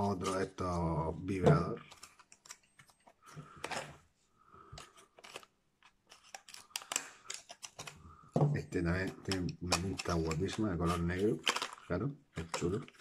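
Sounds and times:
packaging crinkling and rustling: 4.8s - 8.1s, 9.0s - 13.0s.

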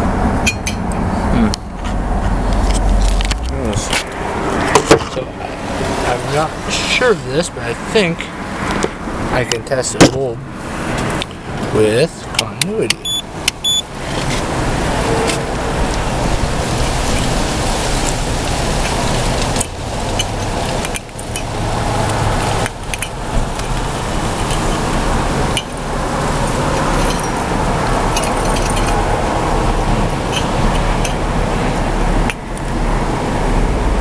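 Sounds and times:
wind rushing on microphone: 10.2s - 34.0s.

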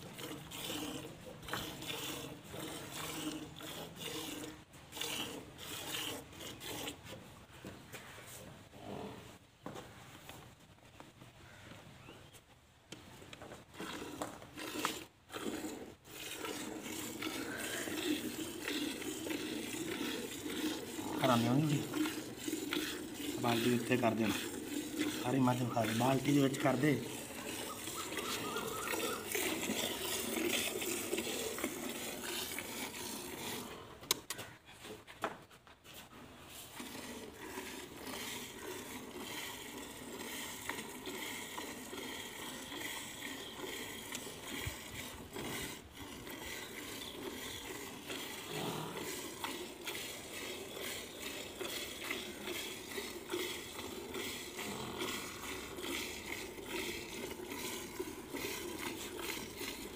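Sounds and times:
milk squirting into metal bucket: 0.0s - 7.2s, 13.7s - 34.5s, 36.5s - 59.9s.

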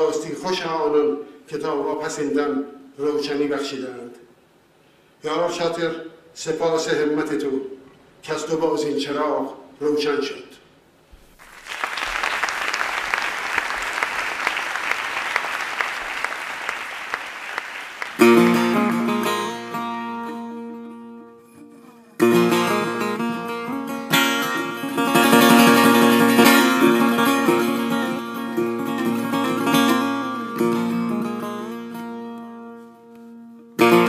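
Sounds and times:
audience applauding: 11.4s - 19.1s
plucked string instrument music: 18.2s - 34.0s.

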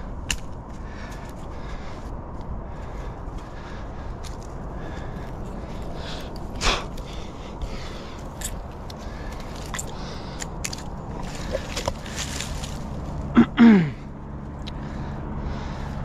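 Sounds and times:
steady low rumble: 0.0s - 16.0s
hands scraping tree bark: 7.6s - 13.1s.

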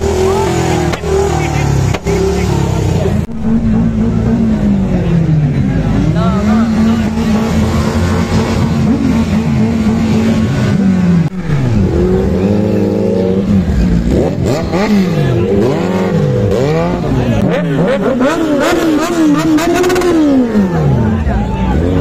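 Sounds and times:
motorcycle engines revving: 0.0s - 22.0s.

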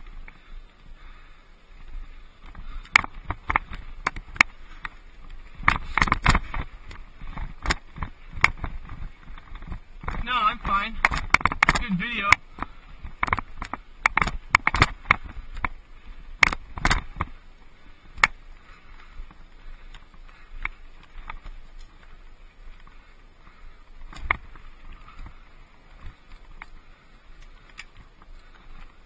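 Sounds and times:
bike tyres on gravel: 0.0s - 29.0s
bike knocking on rocks: 2.5s - 15.8s, 16.4s - 17.4s.

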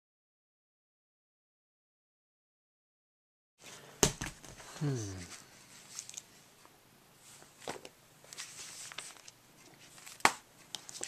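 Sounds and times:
magazine paper rustling: 5.3s - 6.3s, 7.5s - 11.0s.

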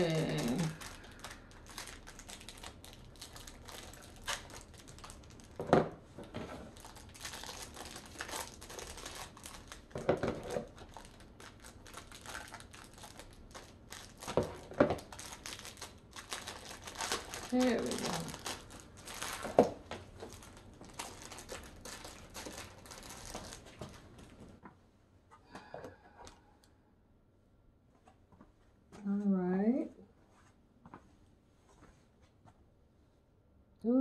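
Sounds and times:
sharp wrapper crackles: 0.0s - 5.6s, 6.6s - 24.0s
wrapper crinkling and rustling: 0.0s - 24.5s.

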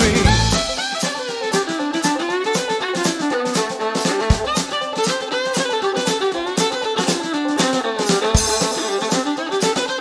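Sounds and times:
low drum hit with cymbal crash: 0.0s - 1.2s
folk-rock band instrumental: 0.0s - 10.0s.

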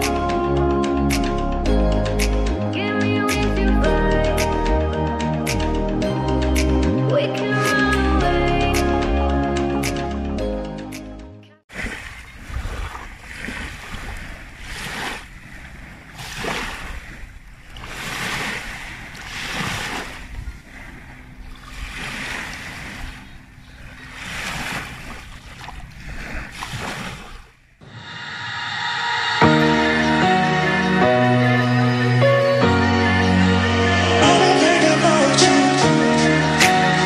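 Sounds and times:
waves washing on sandy shore: 11.7s - 29.3s.

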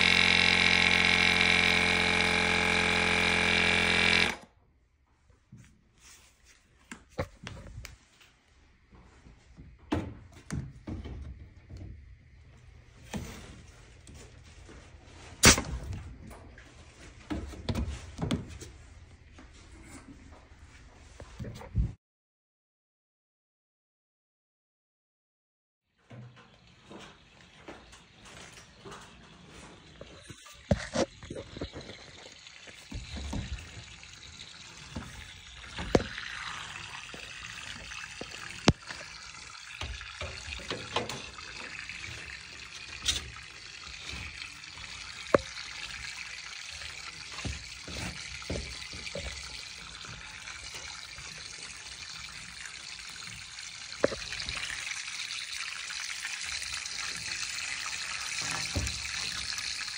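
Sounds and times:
water trickling through pipe: 0.0s - 4.5s, 25.9s - 59.9s.

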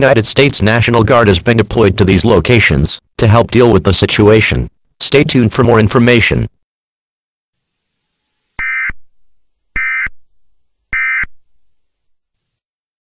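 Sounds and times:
buzzy digital data tones: 8.6s - 9.0s.

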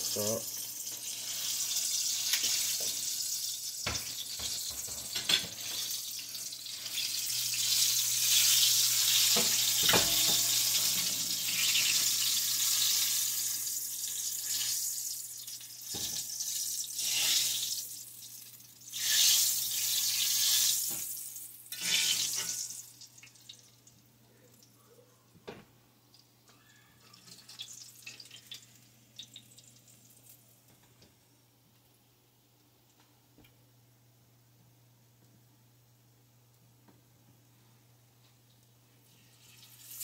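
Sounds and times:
hot oil sizzling: 0.0s - 23.9s, 27.3s - 30.4s, 39.1s - 40.0s.

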